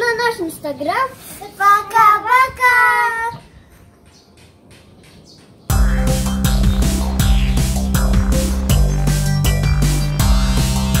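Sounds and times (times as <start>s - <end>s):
drum hits: 5.7s - 11.0s
theme music with deep bass line: 5.7s - 11.0s.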